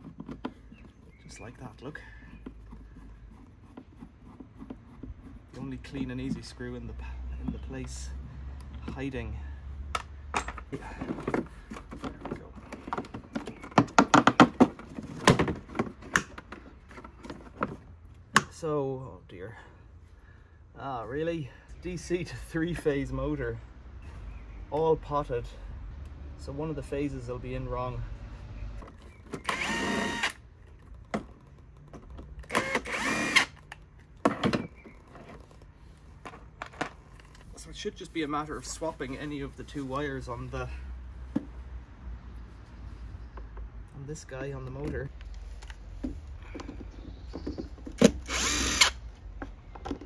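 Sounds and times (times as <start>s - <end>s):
sharp clicks and knocks: 9.9s - 18.5s, 28.8s - 35.4s
cordless drill motor whine: 29.4s - 30.4s, 32.5s - 33.6s, 48.2s - 49.0s.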